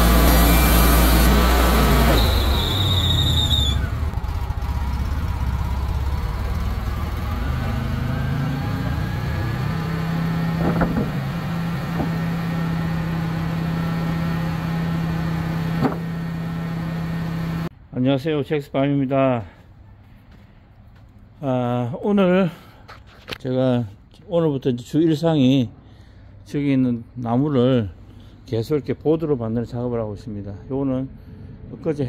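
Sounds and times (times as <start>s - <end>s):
high saw whine: 0.0s - 17.7s
sawmill engine running: 0.0s - 17.7s.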